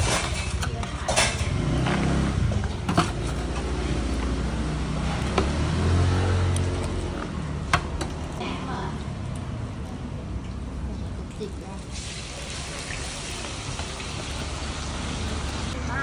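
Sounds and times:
vehicle engine running: 0.4 - 8.4.

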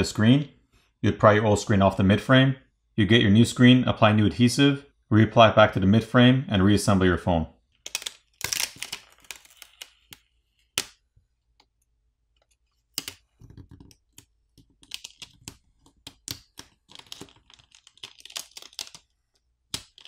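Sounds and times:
flex cable clicking and crackling: 7.7 - 20.0.

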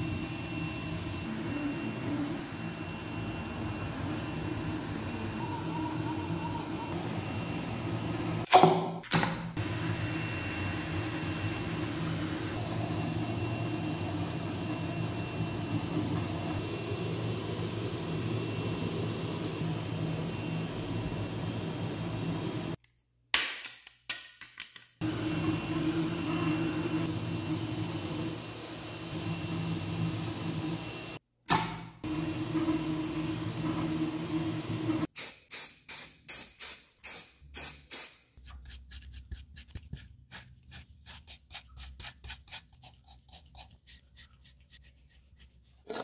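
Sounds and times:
faint high whine: 0.0 - 8.4, 9.6 - 22.8
printer motors and fans humming: 0.0 - 8.5, 9.6 - 22.8, 25.0 - 31.2, 32.0 - 35.1.

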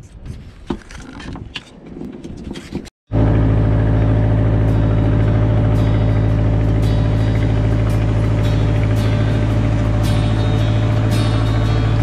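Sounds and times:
boat engine running: 3.1 - 12.0.

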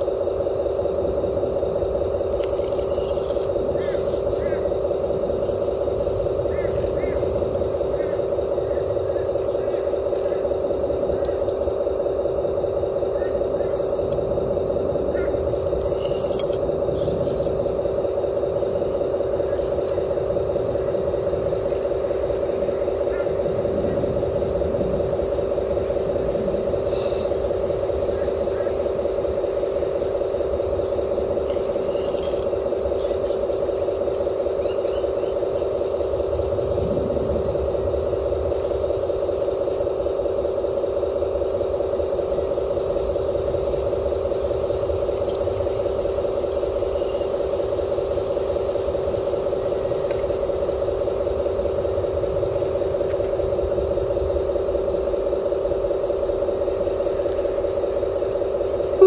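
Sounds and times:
toy vehicle motor hum: 2.0 - 4.8, 15.3 - 16.7, 30.6 - 34.2.

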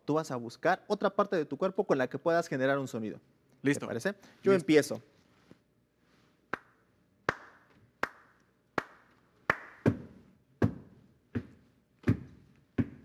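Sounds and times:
hand claps: 6.5 - 10.2.

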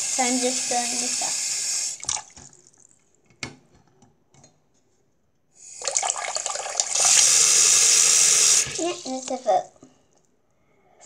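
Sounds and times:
tap water splashing into basin: 2.0 - 2.8.

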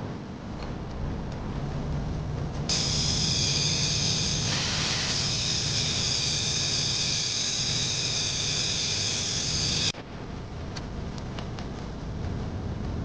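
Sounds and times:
angle grinder cutting metal: 2.7 - 9.9.

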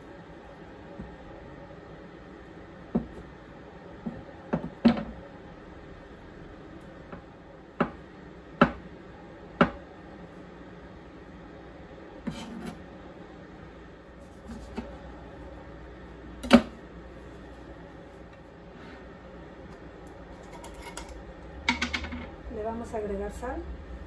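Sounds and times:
knife scraping on board: 12.2 - 12.8, 14.2 - 14.9, 20.4 - 21.2.

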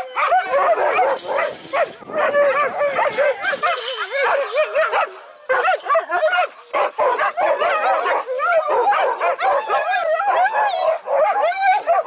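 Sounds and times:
sled dogs yelping and howling: 0.0 - 12.0.

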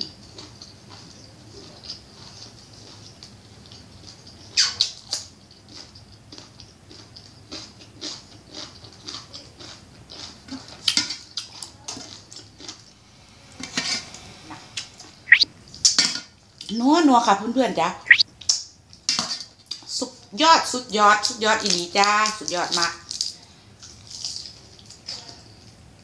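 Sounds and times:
chewing crunches: 0.0 - 13.4.

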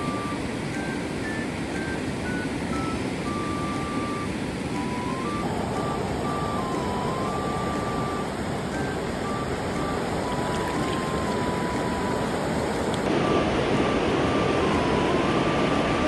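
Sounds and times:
faint high tone: 0.0 - 12.5
stream water rushing: 0.0 - 16.0
water spilling over weir: 10.0 - 12.1.

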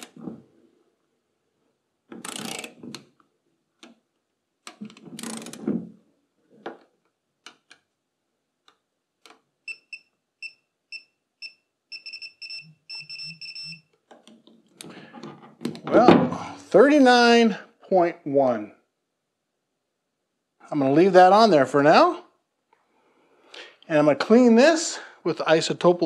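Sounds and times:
wrench clicking and knocking: 2.1 - 3.0
torque wrench beeping: 9.7 - 13.9.

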